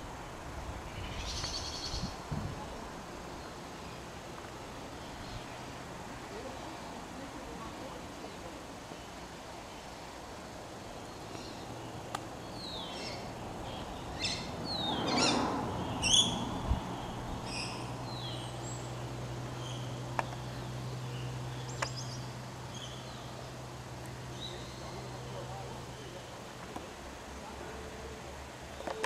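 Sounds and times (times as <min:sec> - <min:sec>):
birds chirping and whistling: 0:12.5 - 0:18.9.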